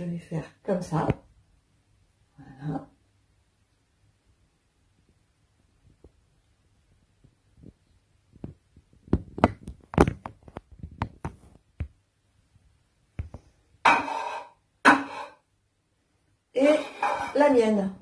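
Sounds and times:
crockery knocking and clinking: 13.9s - 15.4s
short scraping sounds: 13.9s - 15.4s, 16.7s - 17.4s.

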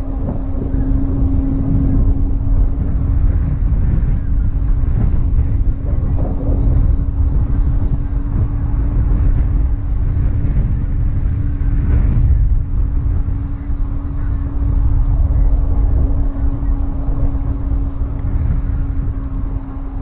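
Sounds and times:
steady hum: 0.0s - 20.0s
wind rumble on microphone: 0.0s - 20.0s.

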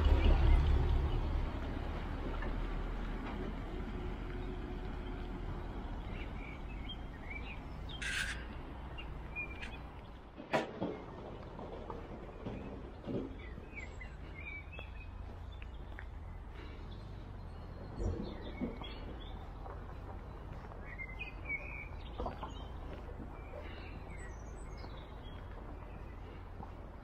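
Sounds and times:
birds chirping and singing: 4.4s - 10.3s, 12.2s - 26.8s.

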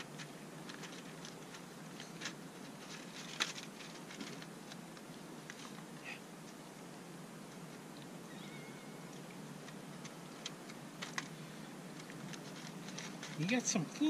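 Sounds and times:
cats eating from plastic tray: 0.0s - 5.9s, 9.2s - 14.0s.

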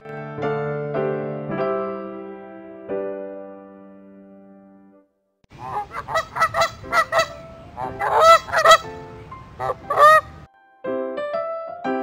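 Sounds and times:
goose honking: 5.6s - 10.4s.

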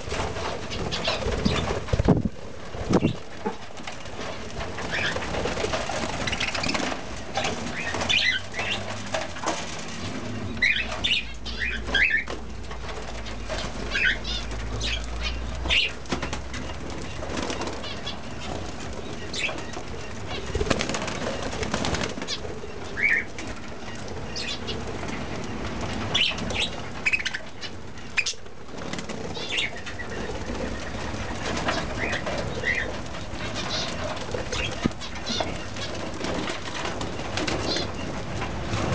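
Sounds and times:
birds chirping: 0.0s - 38.9s
wings fluttering: 0.0s - 38.9s.

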